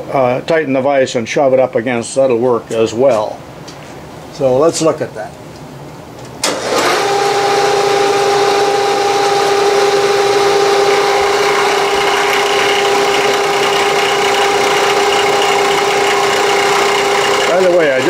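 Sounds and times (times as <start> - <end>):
milling machine cutting metal: 6.5 - 18.0.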